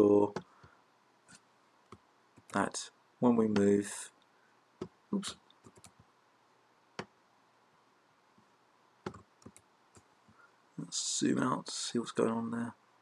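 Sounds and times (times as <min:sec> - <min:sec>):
computer mouse clicks: 0:05.5 - 0:06.0, 0:09.0 - 0:10.1.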